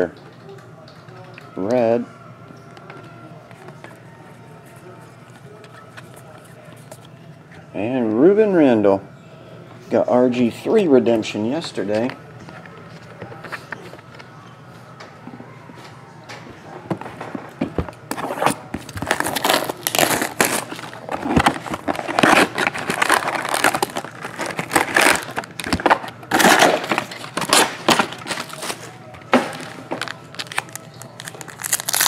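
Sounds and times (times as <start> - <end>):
foil wrappers crinkling: 18.1 - 32.0.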